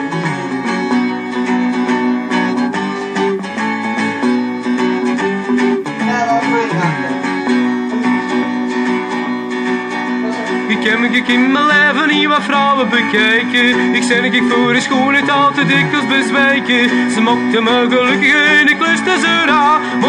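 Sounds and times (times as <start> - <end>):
guitar strummed and plucked: 0.0 - 20.0.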